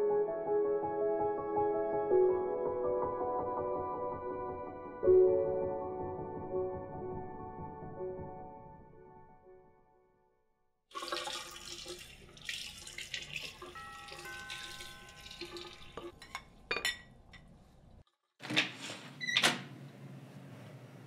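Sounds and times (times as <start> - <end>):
water running from tap: 10.9 - 16.2
held musical tones: 13.6 - 16.2.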